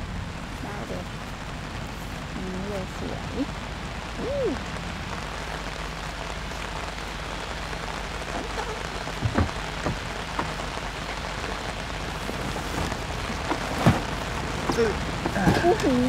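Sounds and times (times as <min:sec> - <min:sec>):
light rain pattering: 0:00.0 - 0:16.0
short knocks: 0:09.2 - 0:10.6.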